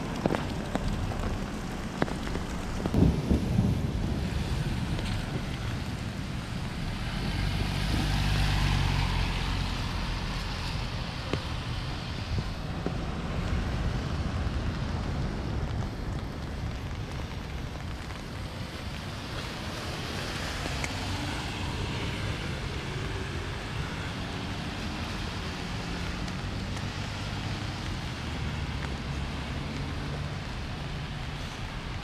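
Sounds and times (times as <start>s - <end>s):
distant road traffic: 0.0s - 32.0s
light rain on wet pavement: 0.0s - 32.0s
wind rumble on microphone: 0.0s - 32.0s.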